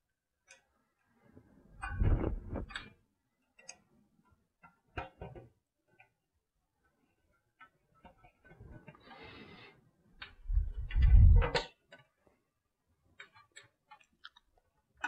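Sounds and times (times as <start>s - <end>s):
wires rustling: 10.2s - 12.0s.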